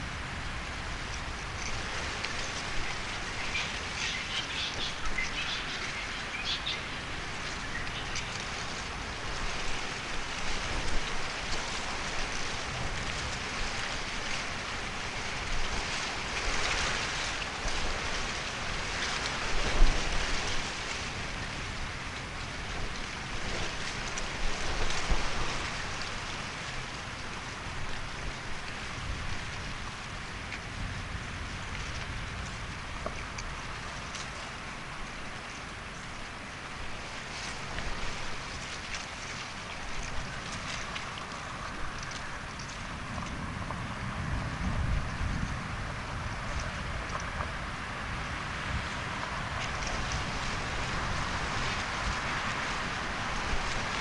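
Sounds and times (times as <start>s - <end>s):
rain-like pattering hiss: 0.0s - 54.0s.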